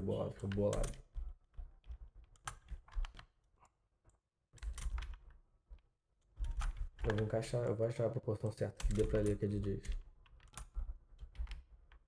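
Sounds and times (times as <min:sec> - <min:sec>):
computer keyboard keystrokes: 0:00.3 - 0:03.3, 0:04.6 - 0:05.4, 0:06.4 - 0:07.8, 0:08.8 - 0:12.0.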